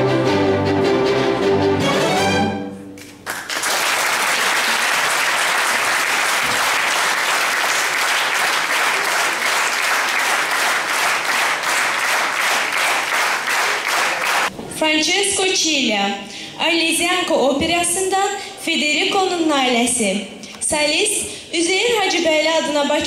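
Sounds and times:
audience applause: 0:03.0 - 0:14.5.

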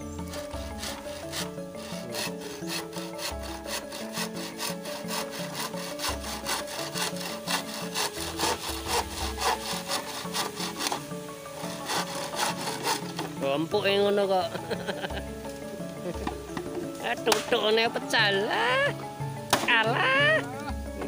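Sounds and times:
hand saw cutting timber: 0:00.0 - 0:20.4.

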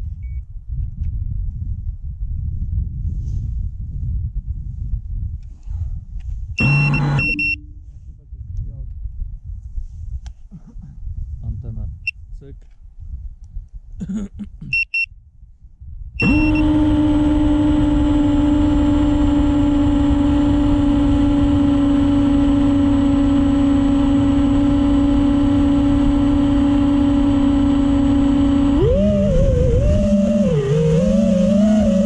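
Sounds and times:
low rumble: 0:00.0 - 0:12.1, 0:18.9 - 0:32.0
short high beeps: 0:06.6 - 0:08.0, 0:14.7 - 0:15.1, 0:16.2 - 0:16.6
loud droning hum: 0:06.6 - 0:08.4, 0:16.2 - 0:32.0.

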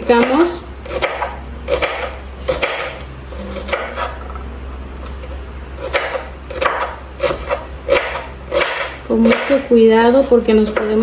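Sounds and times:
knife striking cutting board: 0:01.0 - 0:04.3.

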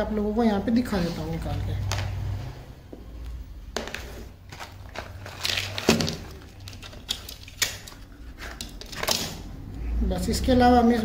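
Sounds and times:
clicks taps and rustles: 0:03.8 - 0:09.4.

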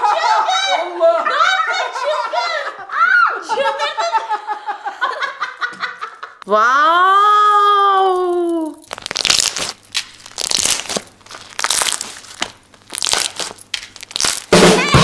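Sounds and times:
slime squelching: 0:08.6 - 0:15.0.

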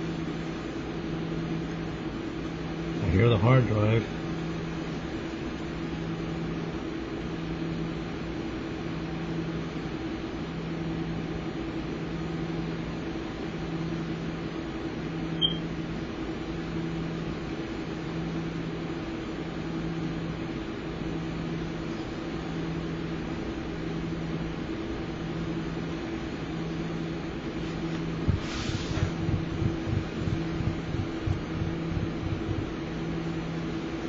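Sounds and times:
hard drive humming: 0:15.0 - 0:16.1.

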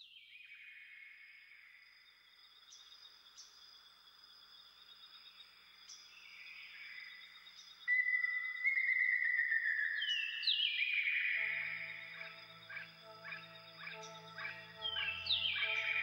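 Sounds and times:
whistling music tone: 0:07.9 - 0:16.0
high insect trills: 0:11.4 - 0:16.0.

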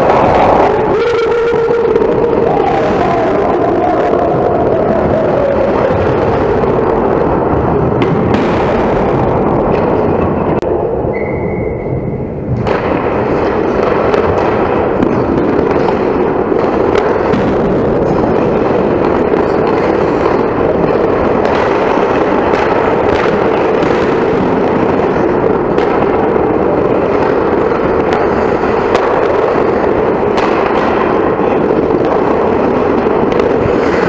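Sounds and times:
hockey sticks knocking puck: 0:00.0 - 0:04.2, 0:12.5 - 0:23.9, 0:24.5 - 0:34.0
skates rushing on ice: 0:00.0 - 0:34.0.

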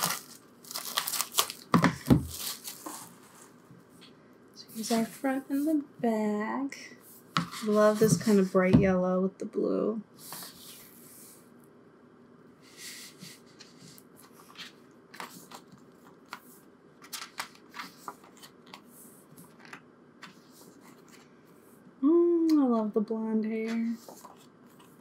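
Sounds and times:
paper pages rustling: 0:00.0 - 0:03.6, 0:13.5 - 0:21.3, 0:23.8 - 0:25.0.

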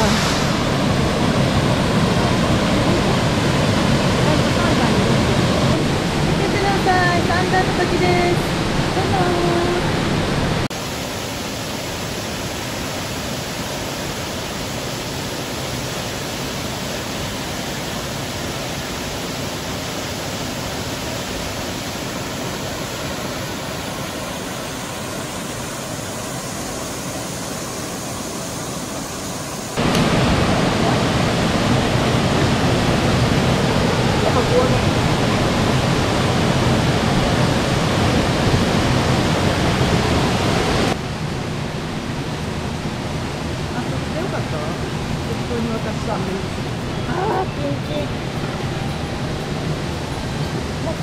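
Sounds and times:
waterfall rushing: 0:00.0 - 0:51.0.

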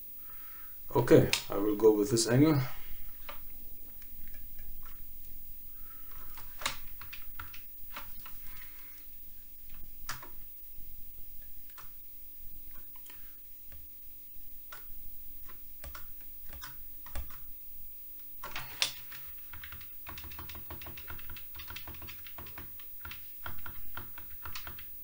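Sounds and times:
keyboard keys clicking: 0:14.7 - 0:17.5, 0:18.4 - 0:25.0.

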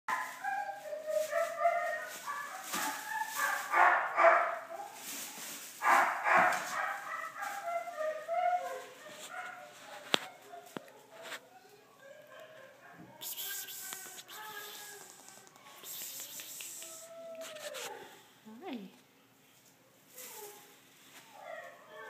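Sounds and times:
loud rustling: 0:00.1 - 0:10.4.

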